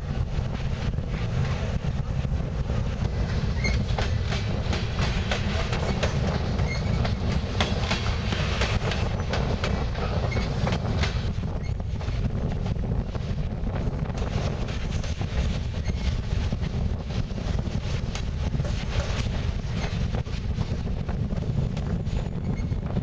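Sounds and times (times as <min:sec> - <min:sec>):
freight train rumble: 0:00.0 - 0:23.0
train wheels clacking over rail joints: 0:03.0 - 0:12.2, 0:17.9 - 0:20.9.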